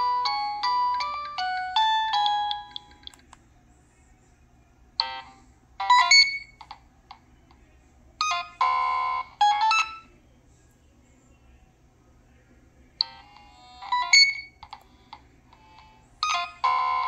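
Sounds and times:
synthesized ringtone melody: 0:00.0 - 0:03.1, 0:05.0 - 0:06.6, 0:08.2 - 0:10.1, 0:13.0 - 0:14.6, 0:15.6 - 0:17.0.

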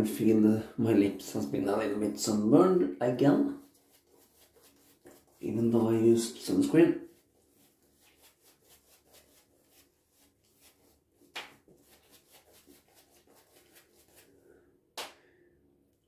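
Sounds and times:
shaving brush swishing on face: 0:03.6 - 0:14.4.

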